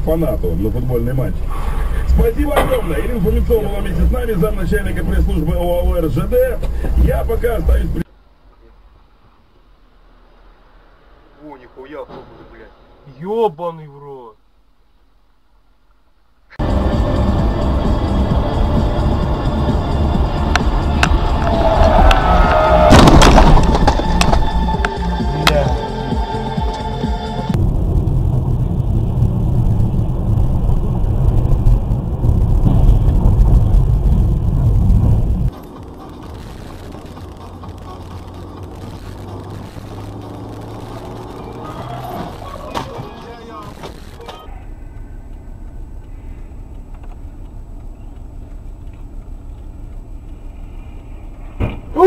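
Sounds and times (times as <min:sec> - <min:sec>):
man talking: 0:00.0 - 0:01.4, 0:02.0 - 0:08.0, 0:11.4 - 0:14.4, 0:25.2 - 0:25.9
car cabin road rumble: 0:00.0 - 0:13.0, 0:14.4 - 0:52.0
sudden loud bang: 0:20.7 - 0:24.5, 0:27.5 - 0:35.4.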